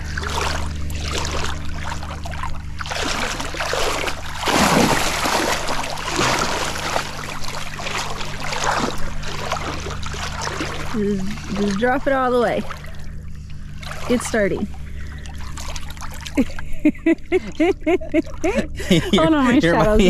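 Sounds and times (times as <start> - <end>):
wading through shallow water: 0.0 - 20.0.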